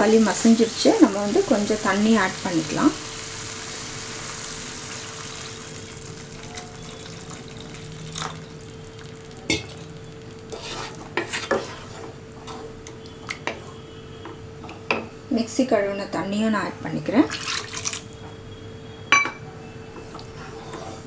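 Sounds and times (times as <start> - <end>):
water pouring into sizzling pan: 0.7 - 10.6, 17.3 - 18.0
spatula scraping a pan: 10.4 - 12.8, 20.1 - 21.0.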